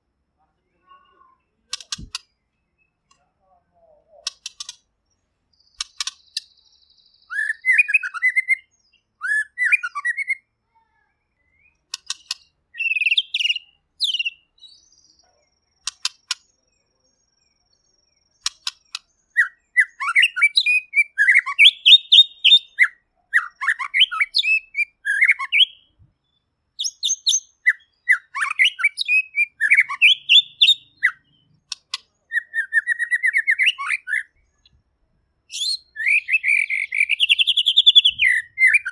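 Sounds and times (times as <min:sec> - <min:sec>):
sharp bird clicks: 0:01.6 - 0:03.3, 0:04.1 - 0:06.6, 0:11.6 - 0:14.4, 0:15.6 - 0:16.8, 0:18.2 - 0:25.8, 0:26.8 - 0:34.8
rattling bird trill: 0:04.2 - 0:04.9, 0:05.7 - 0:06.5
bird singing whistled phrases: 0:06.8 - 0:10.5, 0:11.3 - 0:15.0, 0:19.3 - 0:25.9, 0:26.8 - 0:31.3, 0:32.3 - 0:34.7, 0:35.5 - 0:38.9.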